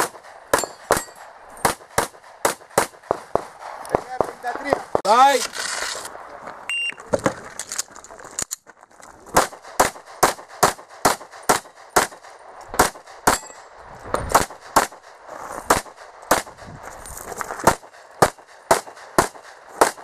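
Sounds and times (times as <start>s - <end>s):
pistol shots: 0.0s - 4.9s, 9.3s - 13.6s, 14.3s - 15.1s, 15.7s - 16.6s, 17.6s - 20.0s.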